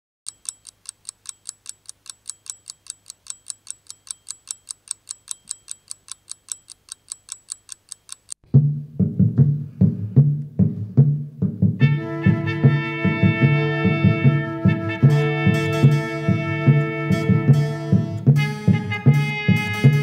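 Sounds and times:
rapid even ticking: 0.3s - 8.4s.

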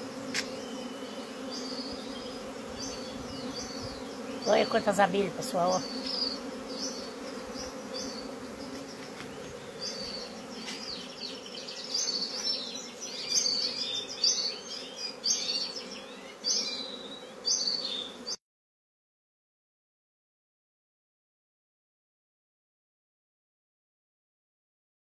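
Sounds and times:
bee swarm buzzing: 0.0s - 18.4s.

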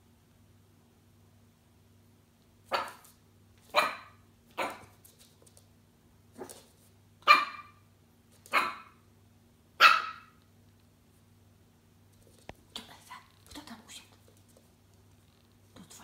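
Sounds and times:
puppy yapping: 2.7s - 3.1s, 3.7s - 4.9s, 7.2s - 7.8s, 8.5s - 9.0s, 9.8s - 10.4s.

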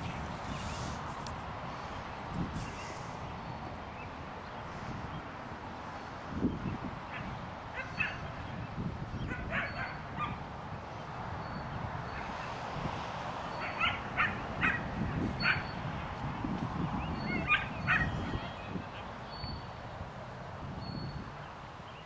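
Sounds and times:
dog yipping and whining: 9.3s - 10.4s, 15.4s - 15.8s, 17.2s - 18.5s.

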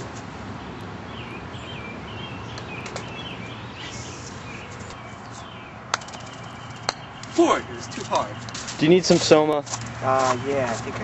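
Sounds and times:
birds chirping: 0.0s - 11.0s
outdoor background noise: 0.0s - 11.0s
putter striking golf ball: 5.9s - 7.3s.

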